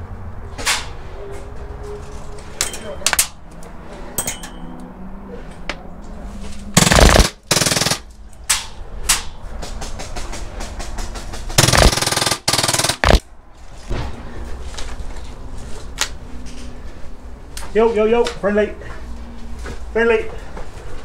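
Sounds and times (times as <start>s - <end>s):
airsoft pistol full-auto bursts: 6.8s - 8.0s, 11.6s - 13.2s.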